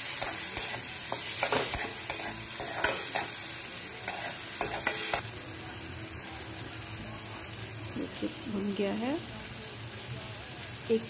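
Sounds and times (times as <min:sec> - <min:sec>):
metal spatula scraping a pan: 0:00.0 - 0:05.2
masala sizzling in oil: 0:00.0 - 0:11.0.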